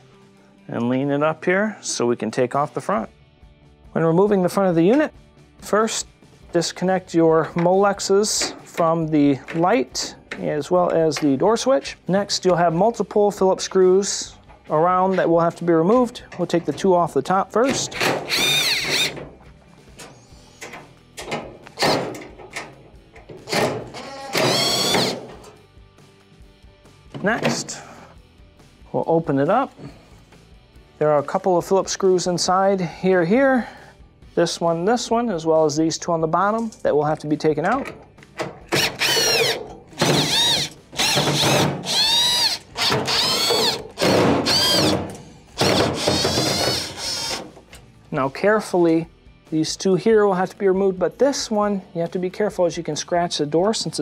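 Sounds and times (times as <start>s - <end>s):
knocks and clicks handling metal: 7.4s - 11.4s, 14.4s - 25.6s, 37.6s - 42.0s
cordless drill whirring: 18.3s - 19.2s, 24.0s - 25.2s, 38.8s - 44.9s, 45.6s - 47.4s.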